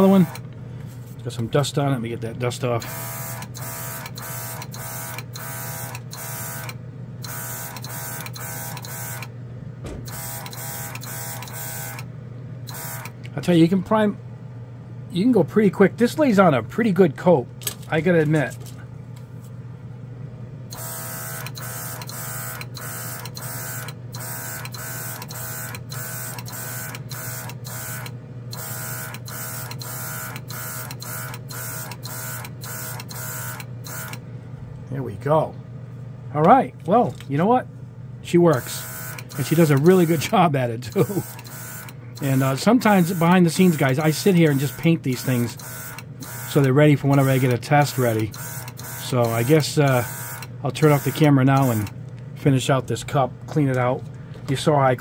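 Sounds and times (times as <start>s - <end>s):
airbrush compressor whirring hum: 0.0s - 1.2s, 2.7s - 13.2s, 20.7s - 34.2s, 38.5s - 52.0s.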